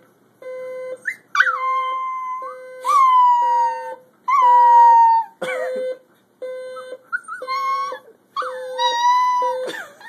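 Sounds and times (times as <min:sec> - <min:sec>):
alarm clock beeping: 0:00.4 - 0:01.0, 0:02.4 - 0:03.0, 0:05.7 - 0:07.9
puppy howling: 0:01.4 - 0:05.4, 0:07.2 - 0:09.7.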